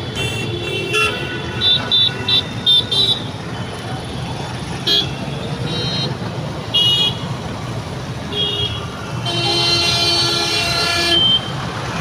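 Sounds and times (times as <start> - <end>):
vehicle horns: 0.0 - 3.4, 4.8 - 7.4, 8.2 - 11.8
engines and tyres on wet road: 2.5 - 12.0.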